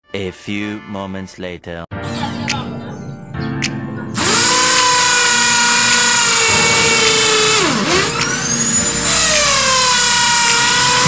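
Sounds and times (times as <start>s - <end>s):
electric power drill whining: 4.2s - 11.0s.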